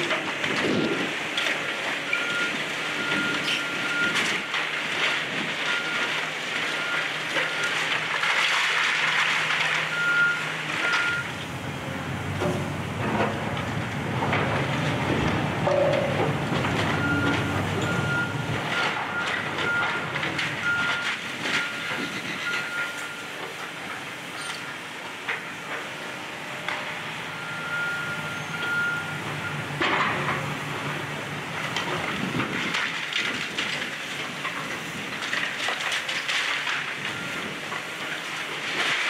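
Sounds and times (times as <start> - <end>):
diesel engines running: 0.0 - 39.0
brick and debris crunching: 3.1 - 11.2, 31.6 - 39.0.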